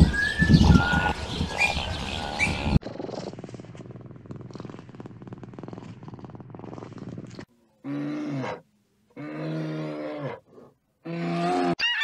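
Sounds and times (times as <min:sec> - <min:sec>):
birds chirping: 0:00.0 - 0:03.4
cat purring: 0:02.8 - 0:07.5.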